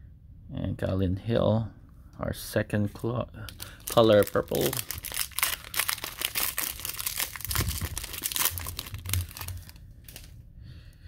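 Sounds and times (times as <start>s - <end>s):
foil wrapper tearing and crinkling: 3.5s - 10.3s.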